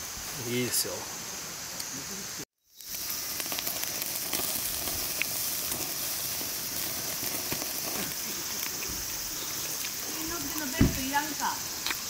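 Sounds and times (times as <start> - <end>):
meat sizzling on grill: 0.0 - 12.0
fat crackling and popping: 2.7 - 12.0.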